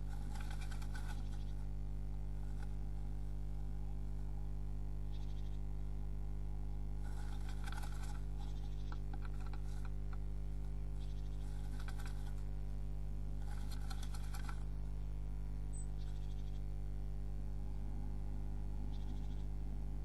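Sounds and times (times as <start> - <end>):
bird scratching in nest box: 0.0 - 1.6, 7.0 - 10.3, 11.0 - 12.5, 13.4 - 14.7
electrical hum: 0.0 - 20.0.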